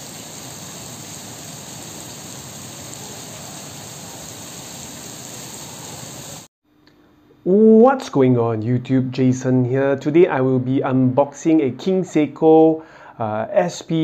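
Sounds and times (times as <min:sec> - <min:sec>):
steady rain on paving and grass: 0:00.0 - 0:06.5.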